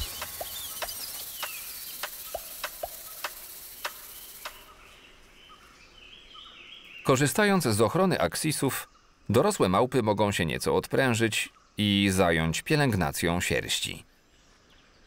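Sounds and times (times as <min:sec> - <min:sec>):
sharp clicks: 0:00.0 - 0:04.6
high insect hiss: 0:00.0 - 0:04.8
birds twittering and chirping: 0:00.0 - 0:15.0.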